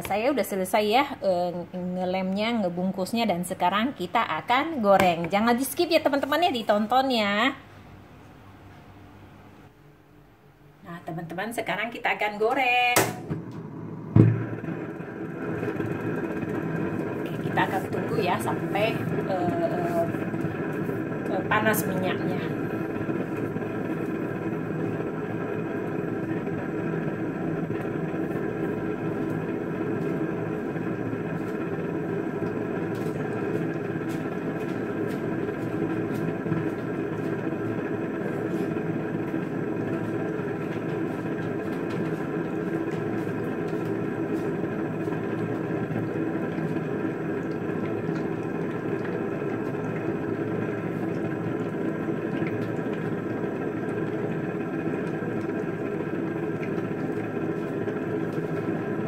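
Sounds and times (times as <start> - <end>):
gas stove burner rumbling: 0.0 - 8.0, 11.0 - 59.0.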